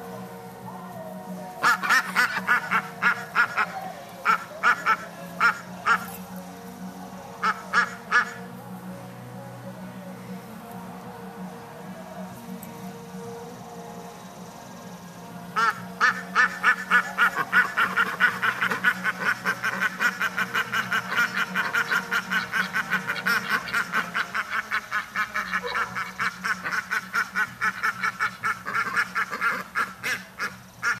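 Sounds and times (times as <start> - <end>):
ducks quacking: 1.6 - 6.4, 7.3 - 8.6, 15.5 - 31.0.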